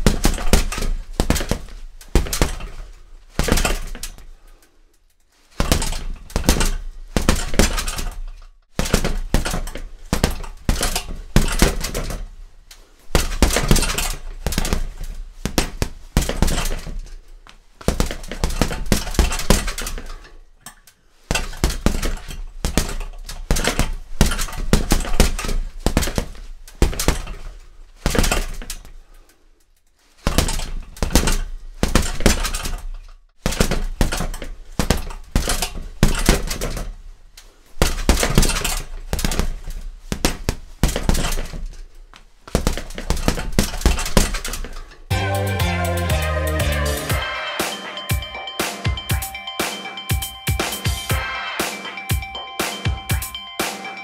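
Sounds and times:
boxing gloves hitting heavy bag: 0.0s - 4.4s, 5.5s - 12.4s, 13.1s - 17.2s, 17.8s - 20.4s, 21.2s - 29.0s, 30.2s - 37.1s, 37.7s - 45.0s.

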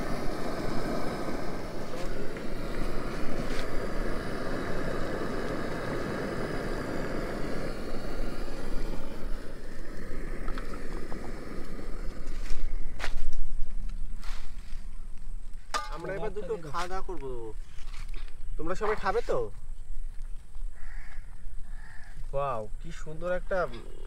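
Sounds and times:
steady rushing noise: 0.0s - 17.2s.

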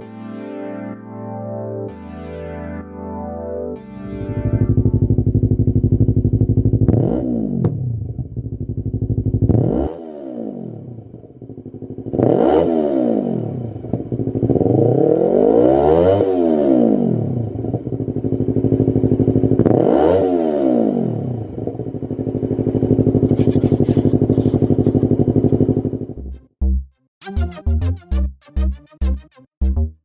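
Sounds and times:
motorcycle engine revving: 4.3s - 26.3s.

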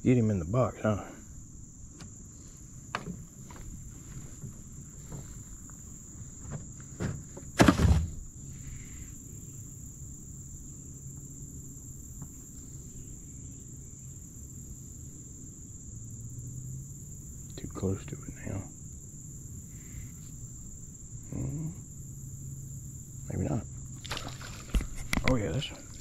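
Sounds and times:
high insect drone: 0.0s - 26.0s
fish knocking in a fish box: 2.9s - 3.7s, 6.5s - 8.3s, 24.0s - 25.4s
loud thump: 7.0s - 8.3s.

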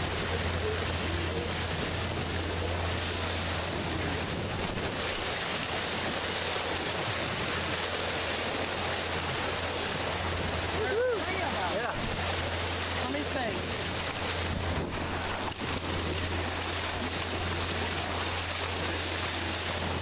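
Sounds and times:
water splashing along boat hull: 0.0s - 20.0s
wind on microphone: 1.3s - 7.8s, 13.4s - 20.0s.

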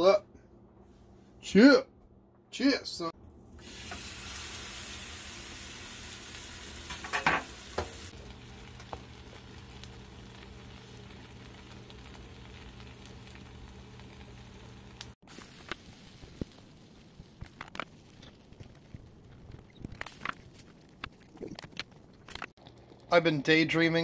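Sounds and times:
sandwich sizzling in frying pan: 3.4s - 21.0s.

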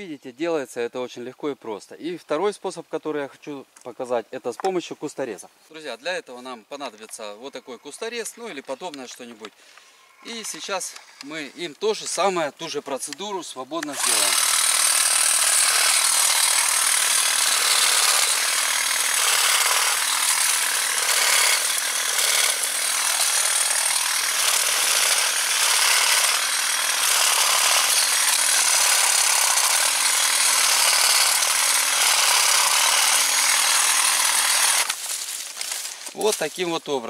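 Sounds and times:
hedge trimmer buzzing: 13.8s - 36.3s.

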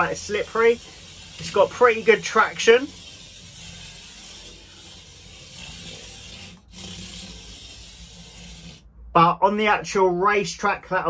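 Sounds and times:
toy car motor hiss: 0.0s - 8.8s
tyres rubbing on surface: 0.0s - 8.8s.

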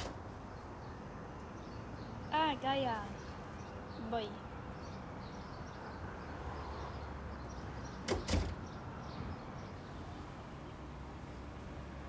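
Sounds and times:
wooden door latching shut: 8.0s - 8.6s.

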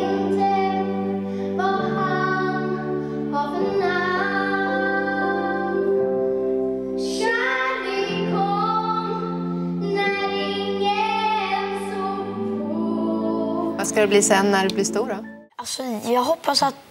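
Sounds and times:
instrumental backing music: 0.0s - 15.6s
children singing: 7.0s - 13.8s.

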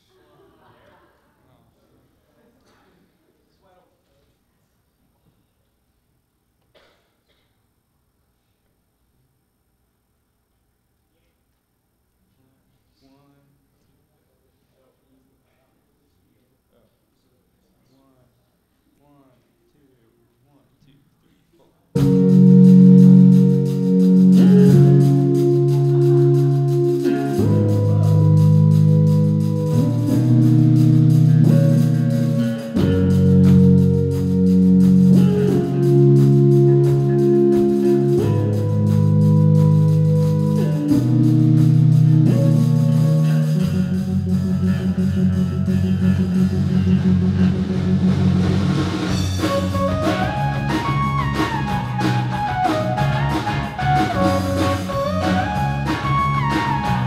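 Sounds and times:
drums: 22.0s - 57.0s
guitar and bass chords: 22.0s - 57.0s
higher melody line: 22.0s - 57.0s.

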